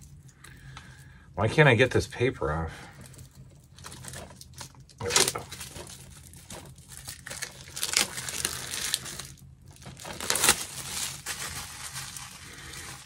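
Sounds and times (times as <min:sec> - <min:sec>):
plastic wrap crinkling: 0:03.0 - 0:13.0.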